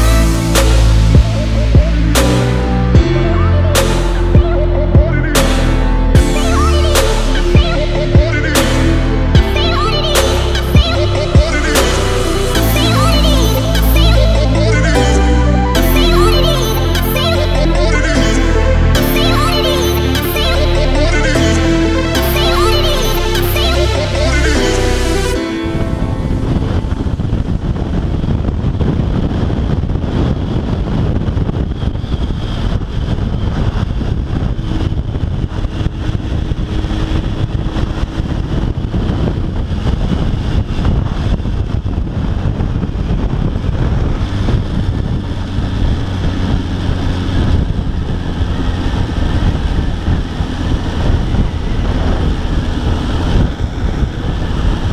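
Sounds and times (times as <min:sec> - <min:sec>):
wind rumble on microphone: 0:00.0 - 0:54.9
motorcycle engine running: 0:27.0 - 0:54.9.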